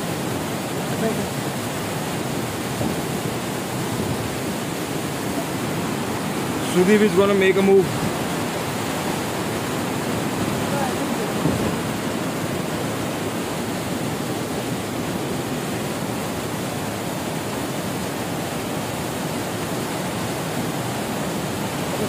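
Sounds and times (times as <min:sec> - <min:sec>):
water rushing over boulders: 0:00.0 - 0:22.0.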